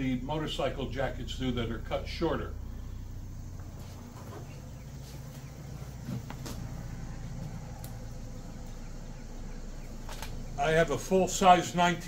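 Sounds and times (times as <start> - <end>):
steady low hum: 0.0 - 12.0
soft rustling: 3.5 - 7.5.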